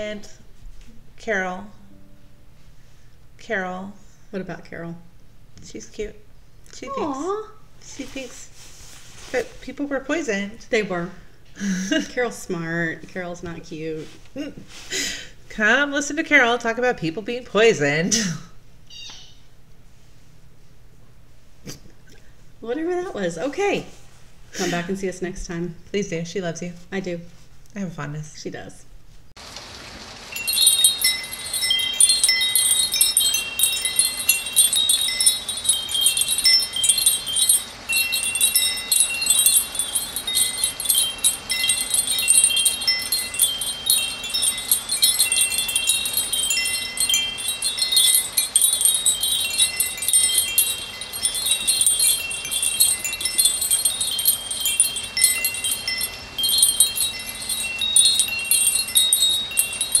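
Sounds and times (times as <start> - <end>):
steady hiss: 29.4 - 60.0
chimes ringing: 30.3 - 60.0.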